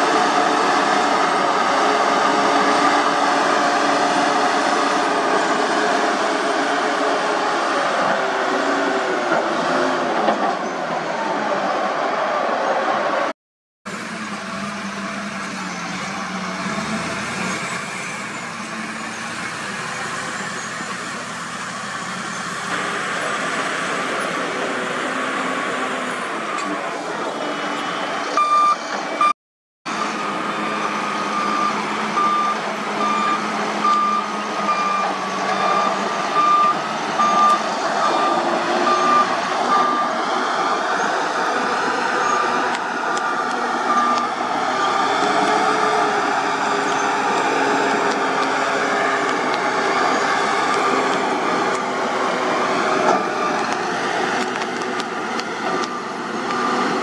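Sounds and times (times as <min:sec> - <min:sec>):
diesel engines of heavy machines: 0:00.0 - 0:57.0
reversing alarm beeping: 0:28.4 - 0:29.4, 0:30.0 - 0:40.3, 0:42.2 - 0:45.4.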